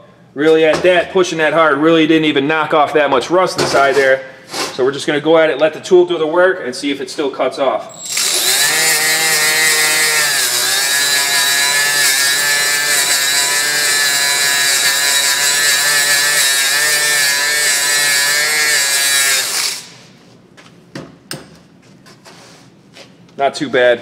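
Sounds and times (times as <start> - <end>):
die grinder motor whine: 7.9 - 19.9.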